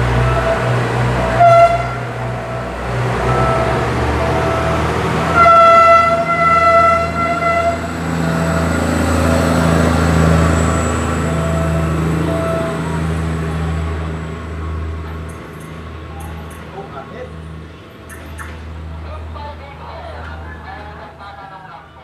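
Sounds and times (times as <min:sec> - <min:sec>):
train horn: 0:00.0 - 0:10.4
diesel engines humming: 0:00.0 - 0:22.0.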